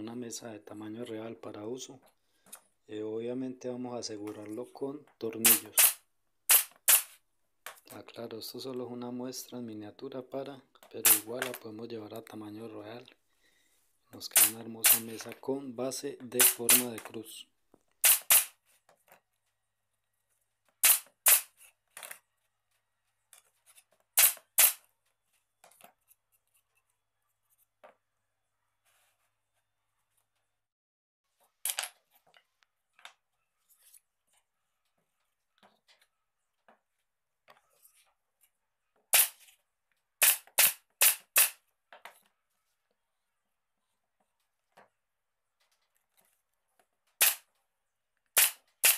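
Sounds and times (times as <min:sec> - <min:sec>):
nails driven into wood: 0:05.4 - 0:07.2, 0:11.0 - 0:11.6, 0:14.3 - 0:15.2, 0:16.3 - 0:17.0, 0:18.0 - 0:18.6, 0:20.8 - 0:22.1, 0:24.2 - 0:24.8, 0:39.1 - 0:39.5, 0:40.2 - 0:41.6, 0:47.2 - 0:47.5, 0:48.3 - 0:48.9.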